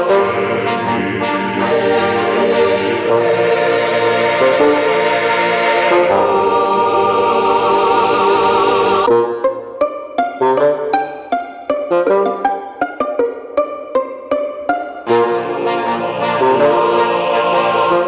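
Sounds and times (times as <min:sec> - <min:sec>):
wavering high voice: 0:00.0 - 0:07.4, 0:15.0 - 0:18.0
choir-like chords: 0:00.0 - 0:09.9, 0:14.3 - 0:18.0.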